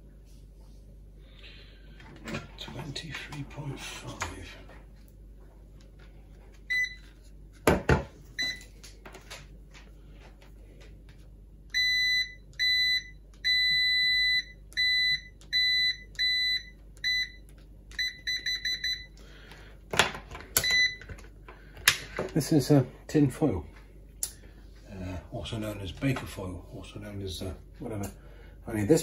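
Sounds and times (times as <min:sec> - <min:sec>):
multimeter beeping: 0:11.7 - 0:19.2.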